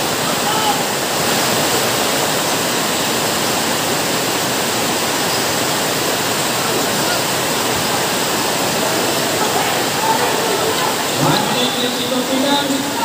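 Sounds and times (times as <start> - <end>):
crowd shouting: 8.7 - 13.0.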